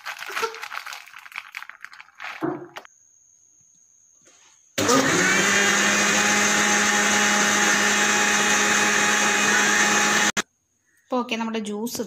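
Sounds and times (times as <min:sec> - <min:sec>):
mixer grinder running: 0:04.8 - 0:10.4.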